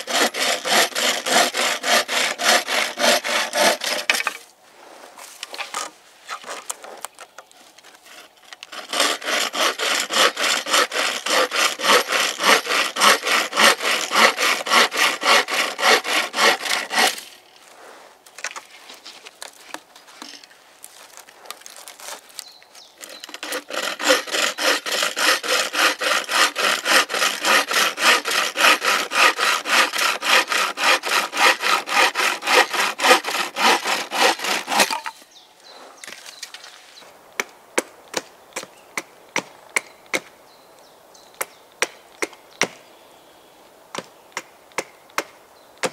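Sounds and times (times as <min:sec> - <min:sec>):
frame saw cutting branch: 0:00.0 - 0:04.5, 0:08.0 - 0:17.5, 0:23.0 - 0:35.2.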